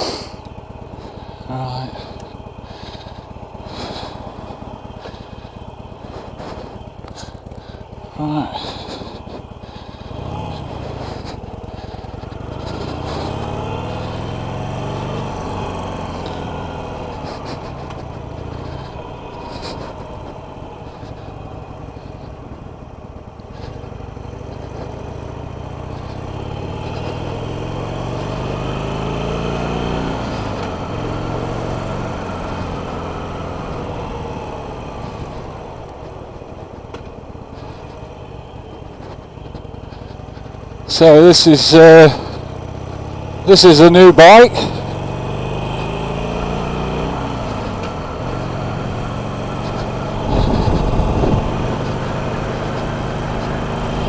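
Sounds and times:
motorcycle engine accelerating: 0:00.0 - 0:54.0
wind rush on microphone: 0:49.8 - 0:52.3.

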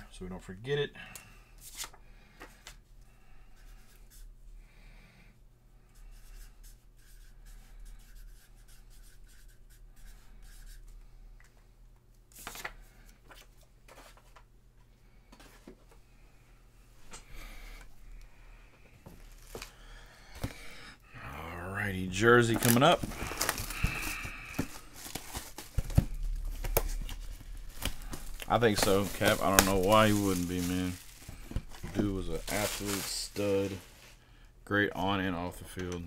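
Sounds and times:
low electrical hum: 0:00.0 - 0:36.0
packaging rustling: 0:19.0 - 0:20.8, 0:22.1 - 0:34.2.

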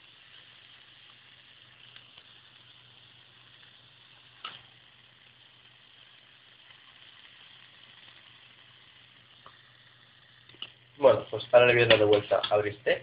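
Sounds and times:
steak sizzling in a pan: 0:00.0 - 0:13.0.

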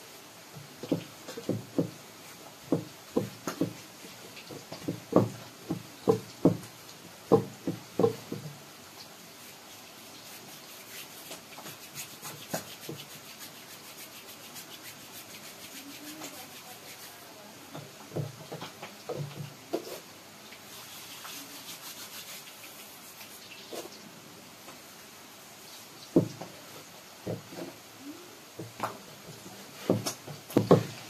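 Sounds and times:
dough thumps: 0:02.7 - 0:03.8, 0:04.5 - 0:06.7, 0:29.8 - 0:31.0
dough rubbing on wooden board: 0:10.2 - 0:17.2.

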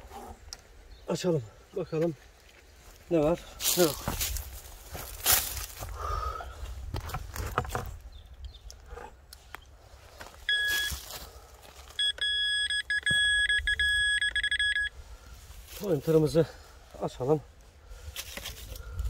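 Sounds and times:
metal detector beeping: 0:10.4 - 0:11.2, 0:11.9 - 0:15.0.

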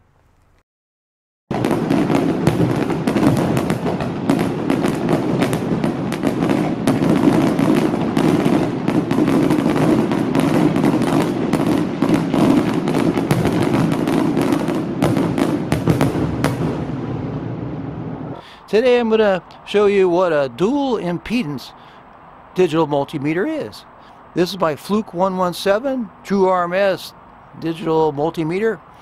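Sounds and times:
fireworks bangs and crackles: 0:01.5 - 0:19.0
continuous rumble: 0:01.5 - 0:29.0.

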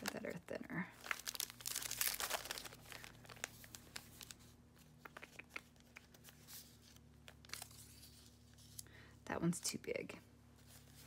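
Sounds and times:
paper rustling and crinkling: 0:01.0 - 0:08.8.

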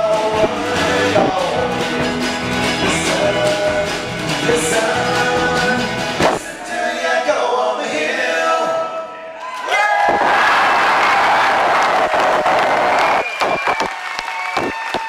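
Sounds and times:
drums: 0:00.0 - 0:06.8, 0:12.0 - 0:15.0
mandolin: 0:00.0 - 0:06.8
strummed acoustic guitar: 0:00.0 - 0:06.8
man singing: 0:00.0 - 0:09.1.

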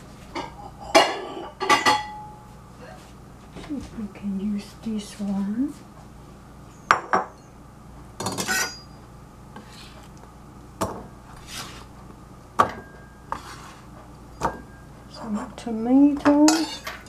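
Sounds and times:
knife scraping cutting board: 0:11.4 - 0:11.9, 0:13.3 - 0:13.9.

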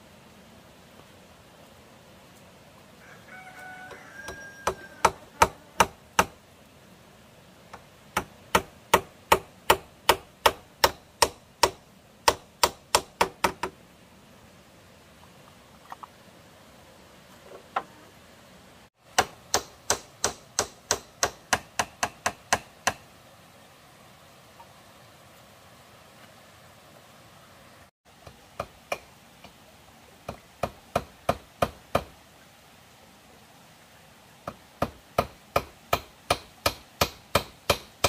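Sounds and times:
hammer driving nails into bamboo: 0:07.7 - 0:13.8, 0:19.1 - 0:23.0, 0:34.5 - 0:38.0.

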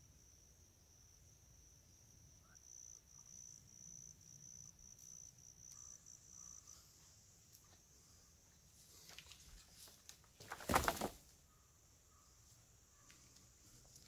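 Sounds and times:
footsteps in undergrowth: 0:08.7 - 0:11.3.

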